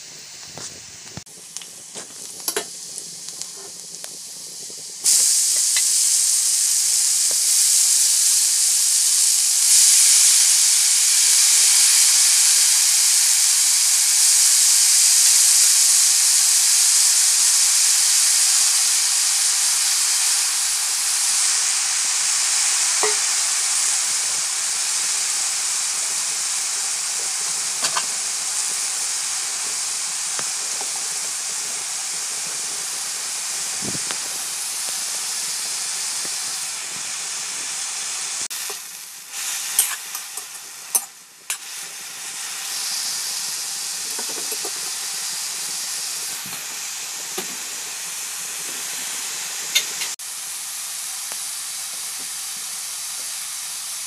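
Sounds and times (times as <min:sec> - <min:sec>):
loud frying sizzle and hiss: 0:00.0 - 0:54.0
onions sizzling in oil: 0:00.0 - 0:54.0
mushrooms hitting hot oil: 0:00.5 - 0:53.4.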